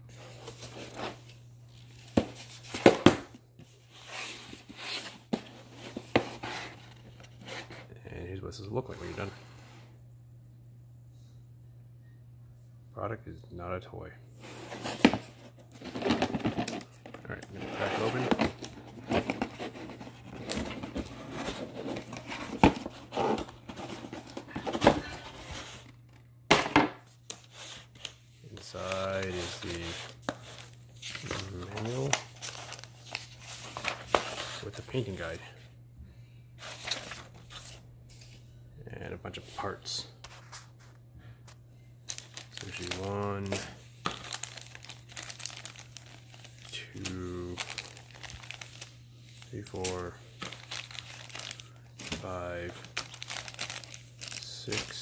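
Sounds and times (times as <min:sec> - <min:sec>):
cardboard rubbing and rustling: 0:14.4 - 0:25.9.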